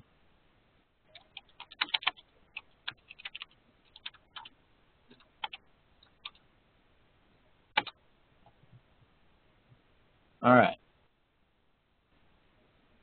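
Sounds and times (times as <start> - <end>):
typing on computer keyboard: 1.1 - 4.5, 5.1 - 6.4, 7.8 - 8.0.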